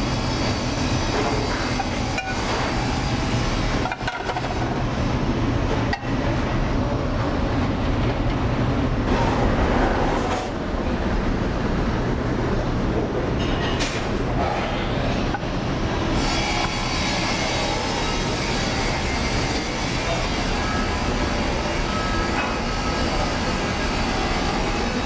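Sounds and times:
kitchen equipment rumble: 0:00.5 - 0:08.5.

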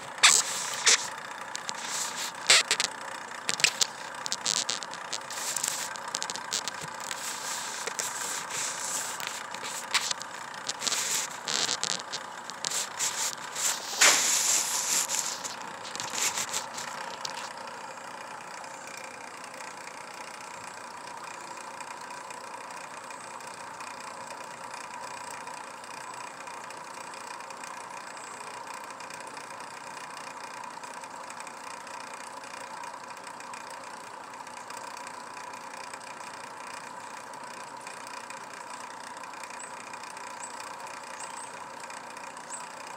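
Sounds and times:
rustling and crackling: 0:00.0 - 0:17.6
steady motor hum: 0:00.0 - 0:42.9.

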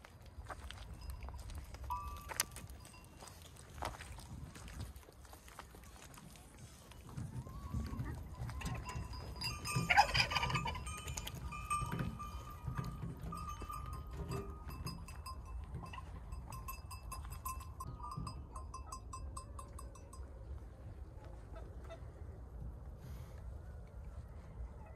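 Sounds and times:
small metallic clinks: 0:08.7 - 0:20.3.

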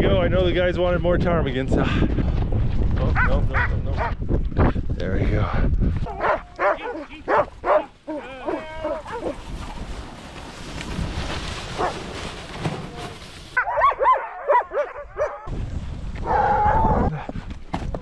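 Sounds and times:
sled dogs yipping and barking: 0:06.1 - 0:10.1, 0:11.7 - 0:12.2, 0:12.8 - 0:15.5.

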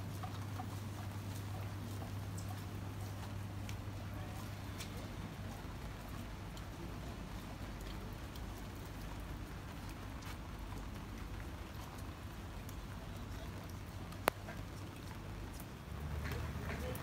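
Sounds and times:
light rain on wet pavement: 0:00.0 - 0:17.0
faint ticks: 0:13.6 - 0:17.0.

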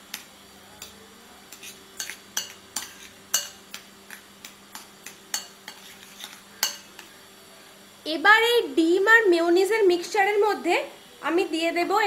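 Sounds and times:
faint hum: 0:00.0 - 0:12.0
spoon mashing egg: 0:00.1 - 0:07.2
spoon clinking against bowl: 0:01.6 - 0:07.1.

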